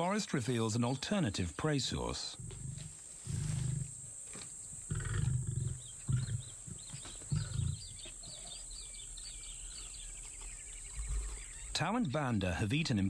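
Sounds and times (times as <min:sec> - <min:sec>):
lions grunting: 0:01.9 - 0:04.0, 0:04.7 - 0:10.0
faint bird chirps: 0:04.6 - 0:12.2.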